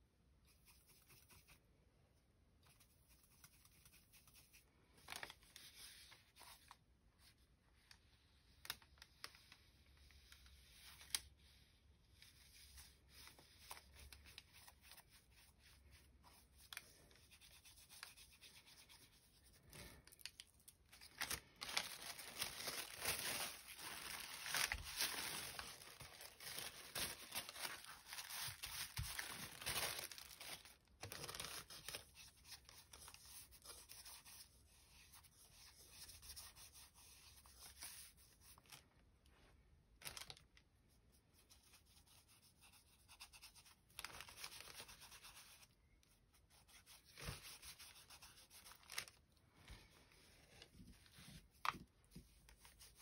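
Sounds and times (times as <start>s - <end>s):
paper rustling and rubbing: 21.0s - 38.8s, 46.4s - 49.2s.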